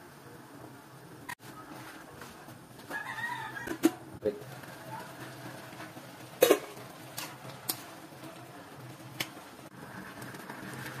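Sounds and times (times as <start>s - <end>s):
soup boiling hiss: 0.0s - 11.0s.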